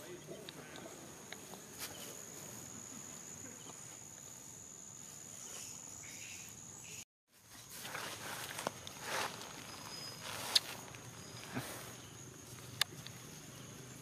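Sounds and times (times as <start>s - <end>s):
insects droning: 0.0s - 14.0s
rustling: 7.3s - 14.0s.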